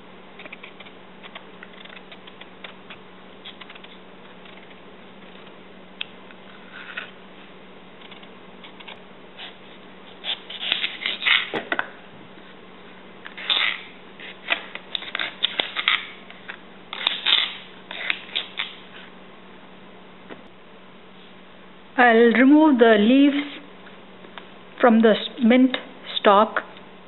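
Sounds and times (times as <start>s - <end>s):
knife scraping and cutting mango: 8.0s - 11.6s, 16.9s - 19.1s.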